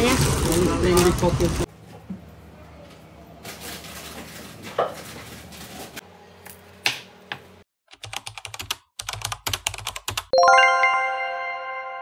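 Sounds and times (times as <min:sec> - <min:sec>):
knocks and rustles of groceries: 0:00.0 - 0:06.0
rapid keyboard typing clicks: 0:07.9 - 0:10.3.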